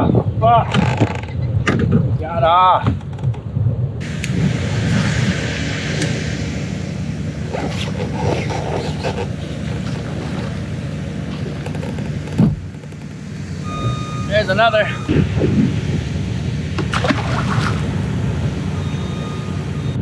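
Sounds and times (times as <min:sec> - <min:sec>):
wind buffeting microphone: 0:00.0 - 0:20.0
rippling water: 0:04.0 - 0:20.0.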